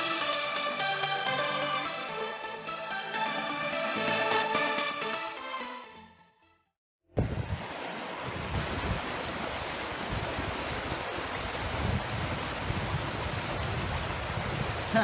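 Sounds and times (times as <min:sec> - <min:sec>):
water rushing over rocks: 0:08.5 - 0:15.0.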